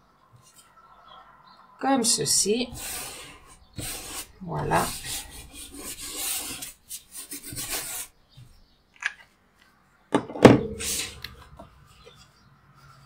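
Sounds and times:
hands rubbing on paper: 0:02.6 - 0:08.6.

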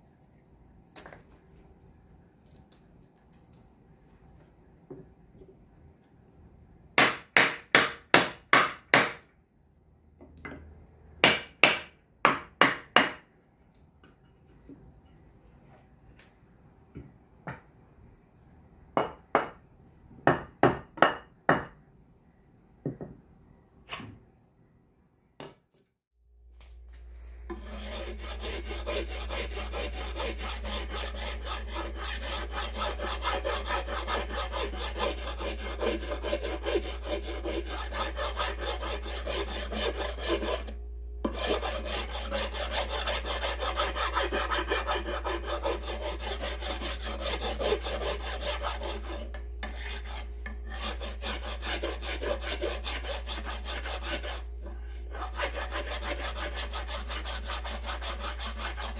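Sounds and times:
rasp scraping wood: 0:27.5 - 0:58.9.

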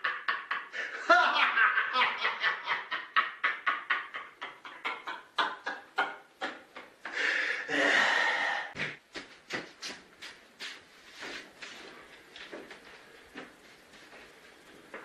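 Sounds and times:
man laughing hard: 0:00.0 - 0:07.8.

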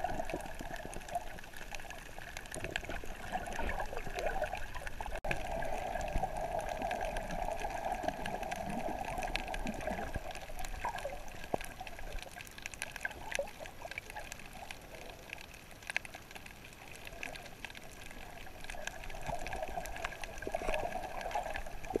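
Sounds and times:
muffled underwater rushing water: 0:00.0 - 0:22.0
sharp clicks and crackles: 0:00.0 - 0:22.0.

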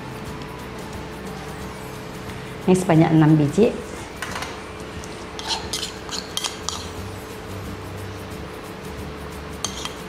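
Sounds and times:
spoon clinking on porcelain bowl: 0:04.3 - 0:07.0, 0:09.6 - 0:10.0.

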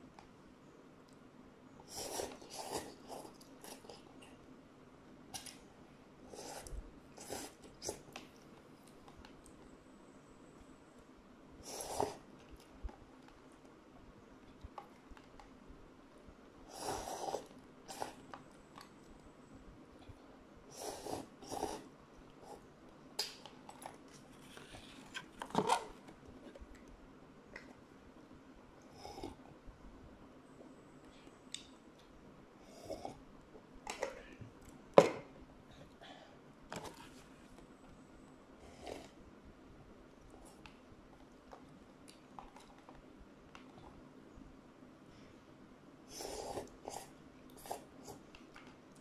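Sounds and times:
person slurping noodles: 0:01.9 - 0:03.8, 0:11.6 - 0:12.3, 0:16.7 - 0:18.2, 0:20.7 - 0:21.9.

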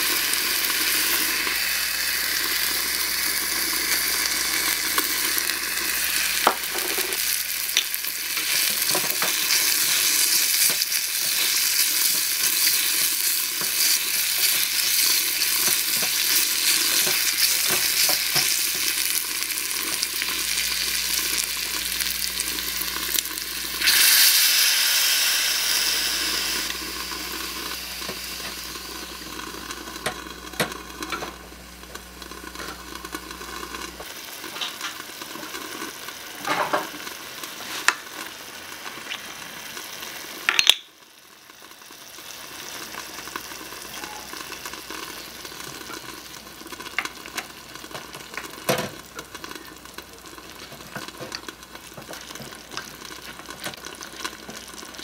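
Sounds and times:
sauce sizzling in a saucepan: 0:00.0 - 0:55.0
utensils tapping on a pan: 0:06.4 - 0:19.0, 0:40.5 - 0:40.9.

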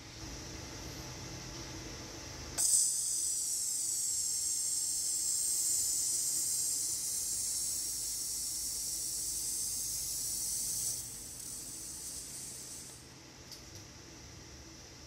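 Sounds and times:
robot arm hissing and whining: 0:02.6 - 0:13.0.

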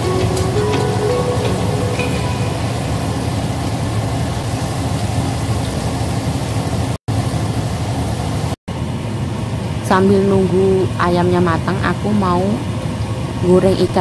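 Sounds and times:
oil sizzling and bubbling: 0:00.0 - 0:09.8.

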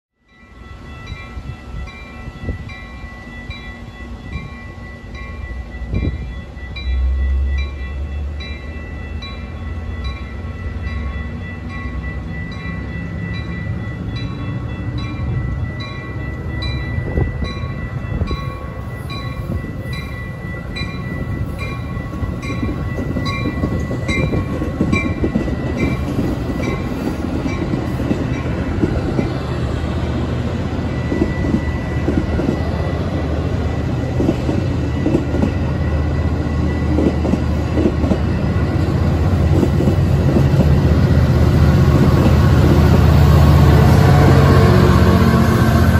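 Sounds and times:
train wheels rumbling: 0:00.7 - 0:45.9
wind hitting microphone: 0:05.8 - 0:06.4, 0:16.6 - 0:35.7.

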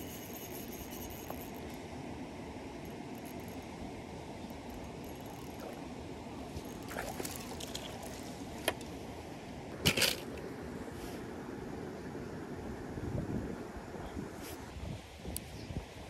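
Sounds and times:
water trickling: 0:06.6 - 0:08.4.

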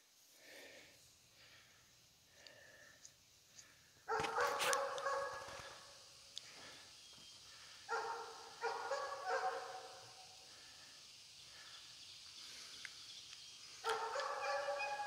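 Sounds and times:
outdoor background noise: 0:00.0 - 0:15.0
dog calling: 0:07.9 - 0:09.9, 0:13.8 - 0:15.0.

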